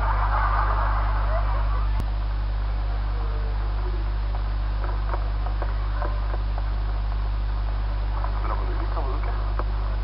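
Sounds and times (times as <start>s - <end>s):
constant hiss: 0.0s - 10.0s
mains hum: 0.0s - 10.0s.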